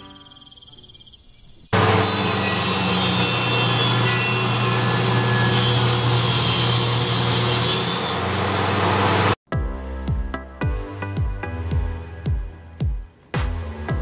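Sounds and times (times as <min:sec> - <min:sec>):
table saw cutting wood: 0:01.8 - 0:09.4.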